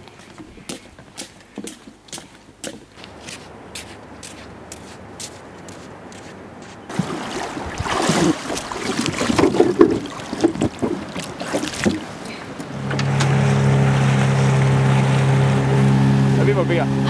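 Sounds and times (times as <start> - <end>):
water splashing against dinghy: 0.0 - 17.0
outboard motor humming: 6.9 - 17.0.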